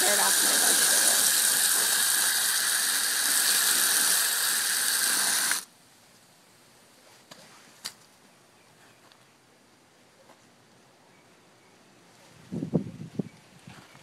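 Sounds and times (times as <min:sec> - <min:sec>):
garden hose spraying water: 0:00.0 - 0:05.7.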